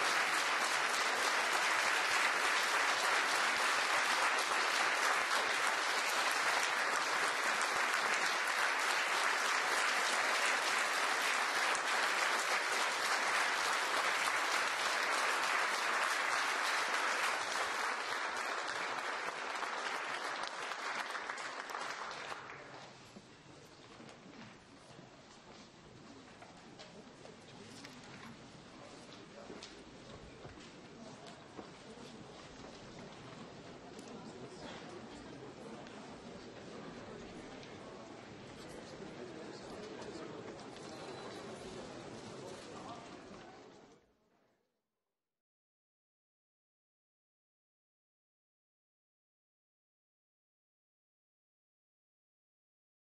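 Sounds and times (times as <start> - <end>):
large audience applauding: 0.0 - 22.9.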